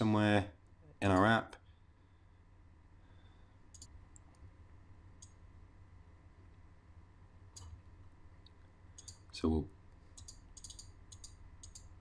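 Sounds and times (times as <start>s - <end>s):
quiet background hum: 0.0s - 12.0s
computer mouse clicks: 3.7s - 4.4s, 8.4s - 9.3s, 10.2s - 11.9s.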